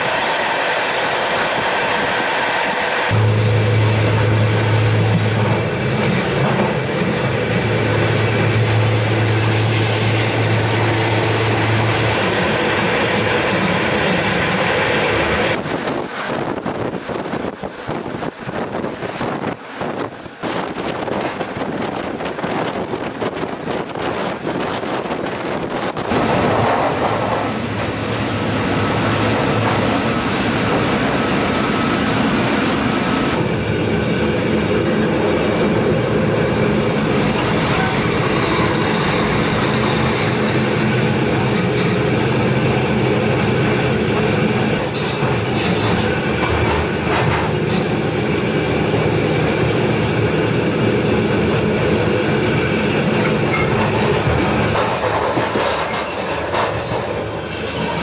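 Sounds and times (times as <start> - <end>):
train wheels rumbling on rails: 0.0 - 58.0
clattering over rail joints: 20.4 - 31.2, 41.3 - 42.3, 44.1 - 48.2, 53.0 - 58.0.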